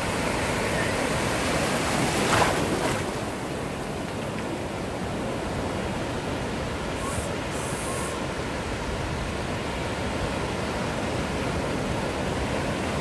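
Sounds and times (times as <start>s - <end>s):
steady wash of water: 0.0s - 13.0s
wave breaking: 0.3s - 3.5s.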